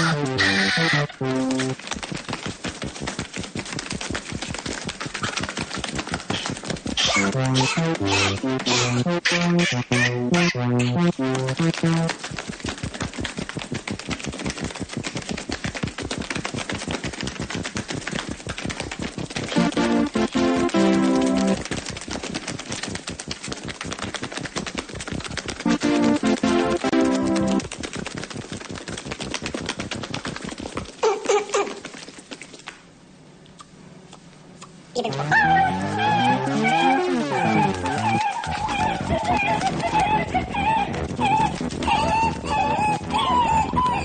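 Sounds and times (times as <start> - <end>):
music: 0.0 - 1.8, 7.0 - 12.2, 19.5 - 21.6, 25.6 - 27.6, 35.1 - 44.0
rapid sharp clicks: 1.2 - 31.0, 37.0 - 43.2.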